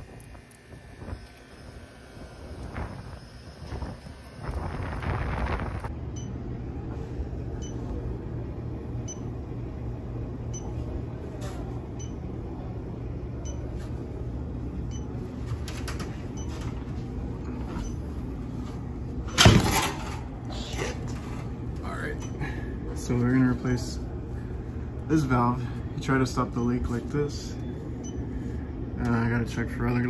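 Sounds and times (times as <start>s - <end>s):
refrigeration machine hum: 0.0s - 30.0s
faint high beeps: 7.6s - 7.8s, 10.5s - 10.8s.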